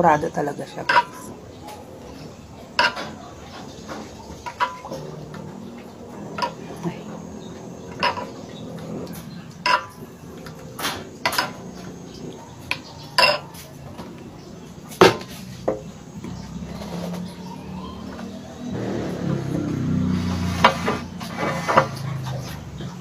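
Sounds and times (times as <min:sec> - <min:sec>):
metal spoon clinking against bowls: 0:00.7 - 0:01.8, 0:02.7 - 0:06.7, 0:07.9 - 0:13.8.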